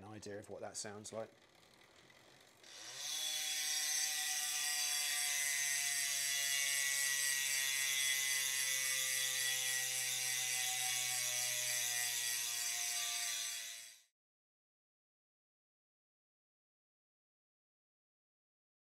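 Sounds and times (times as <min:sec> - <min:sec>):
freewheel ratchet buzzing: 0:01.3 - 0:14.0.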